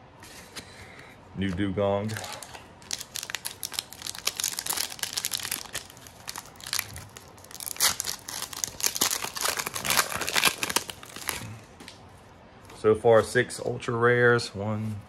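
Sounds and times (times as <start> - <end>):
foil wrapper crinkling: 2.0 - 11.6.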